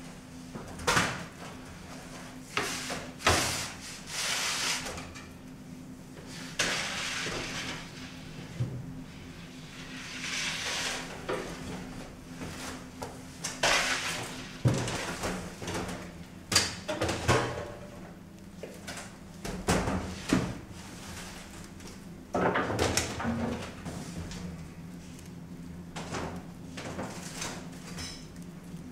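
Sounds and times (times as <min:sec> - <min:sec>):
trays and oven doors clattering: 0:13.5 - 0:18.0.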